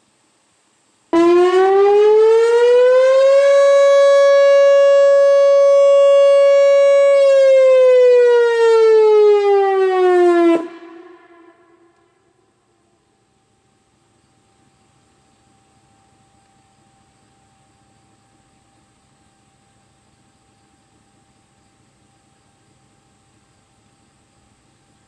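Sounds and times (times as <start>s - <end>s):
rotating warning siren: 1.1s - 12.6s.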